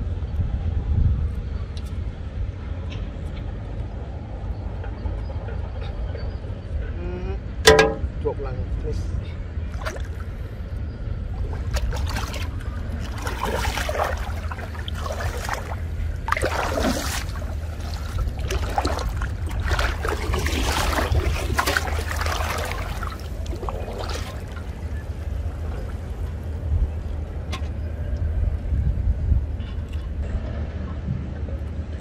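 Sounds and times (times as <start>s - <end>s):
wind on microphone: 0.0s - 2.6s, 11.2s - 32.0s
shallow water splashing: 9.7s - 10.5s, 11.3s - 26.2s.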